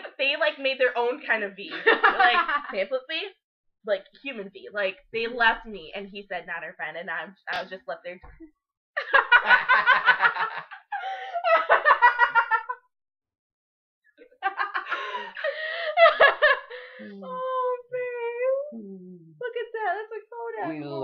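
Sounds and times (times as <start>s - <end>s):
group of people laughing: 9.0s - 12.8s
drawn-out vocal sounds: 16.9s - 17.4s, 18.6s - 19.4s.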